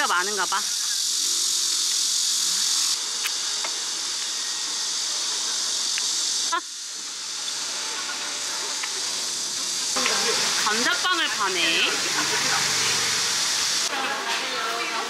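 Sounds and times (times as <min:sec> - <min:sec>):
cicadas buzzing: 0:00.0 - 0:15.0.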